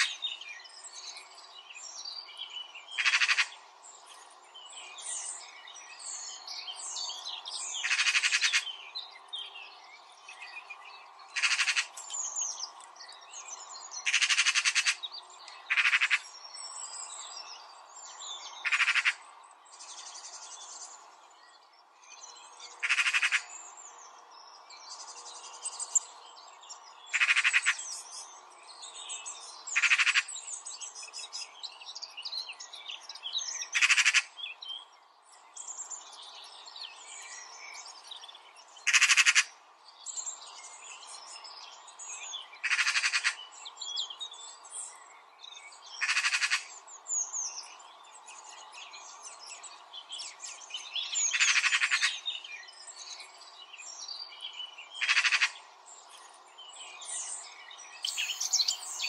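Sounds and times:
birds chirping: 0.0 - 59.0
loud rattling bird call: 3.0 - 3.5, 7.8 - 8.7, 11.4 - 11.9, 14.0 - 15.0, 15.7 - 16.2, 18.6 - 19.2, 22.8 - 23.5, 27.1 - 27.8, 29.8 - 30.3, 33.8 - 34.3, 38.9 - 39.5, 42.6 - 43.4, 46.0 - 46.7, 55.0 - 55.6.

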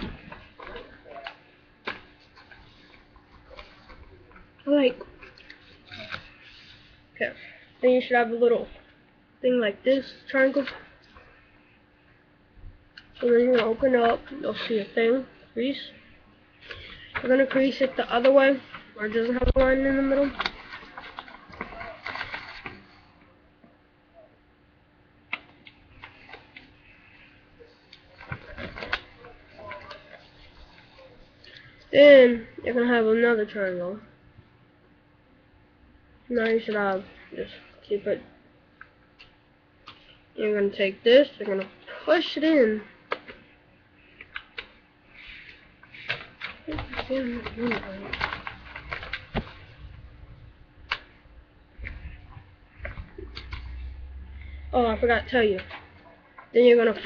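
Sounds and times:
paper being folded and creased: 0.0 - 7.0, 16.6 - 23.2, 25.3 - 31.9, 43.1 - 51.2
faint steady hum: 0.0 - 57.0.

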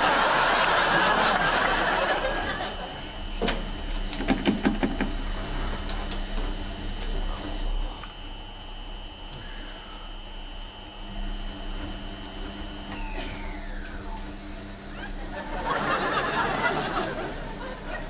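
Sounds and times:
audience laughter: 0.0 - 3.2, 14.9 - 18.0
faint steady hum: 0.0 - 18.0
washing machine clicks and knocks: 4.2 - 5.2.

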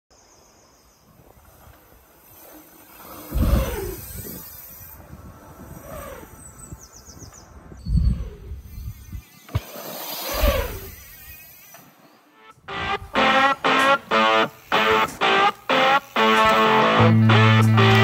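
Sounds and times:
bike tyres rushing past: 1.0 - 12.3.

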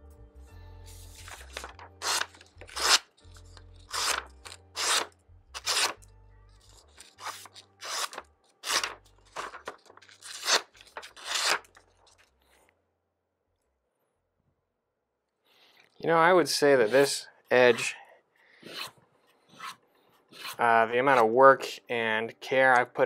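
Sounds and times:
faint background music: 0.0 - 12.7, 15.5 - 23.0
knife slicing paper: 1.1 - 3.2, 3.8 - 6.0, 6.8 - 11.8.

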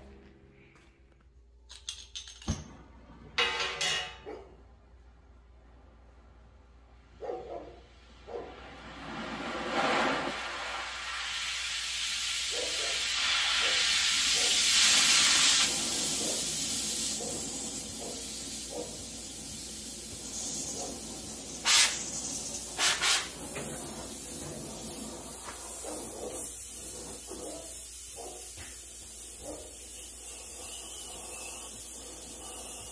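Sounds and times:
cutting torch flame hissing: 8.6 - 32.9.

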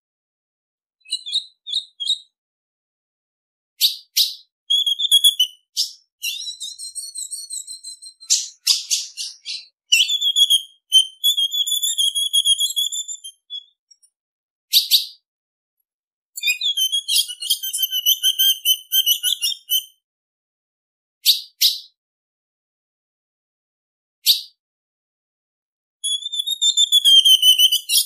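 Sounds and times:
sharp high bird calls: 3.8 - 13.8, 16.4 - 19.9, 26.0 - 28.0
trilled warbling bird phrase: 8.2 - 10.2.

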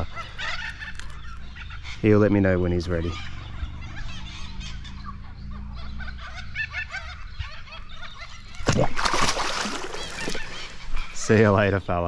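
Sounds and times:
birds chirping: 0.0 - 12.0
fish splashing: 8.4 - 11.2.

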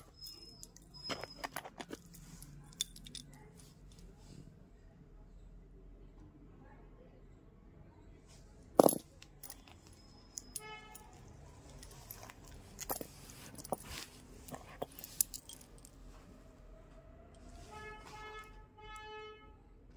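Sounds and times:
metal earrings clinking: 0.0 - 4.0, 8.8 - 16.2.

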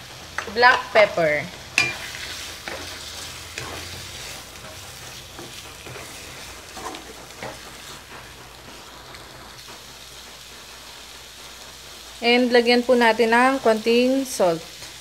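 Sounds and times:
meat sizzling in a wok: 0.0 - 15.0
wooden spatula scraping a pan: 1.9 - 9.8.

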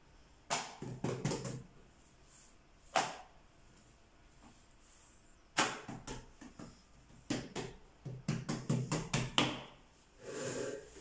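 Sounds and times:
hands slapping dough: 0.4 - 1.7, 2.9 - 3.4, 5.5 - 9.8.

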